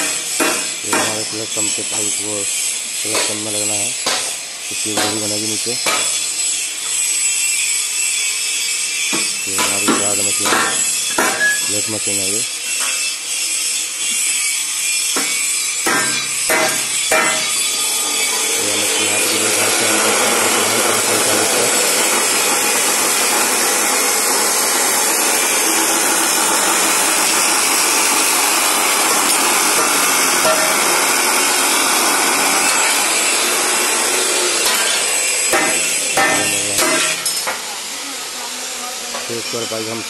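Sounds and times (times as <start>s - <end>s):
chop saw grinding steel: 0.0s - 37.8s.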